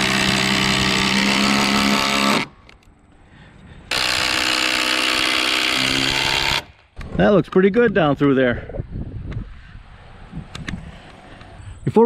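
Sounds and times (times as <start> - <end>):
impact driver driving a screw: 3.9 - 6.8.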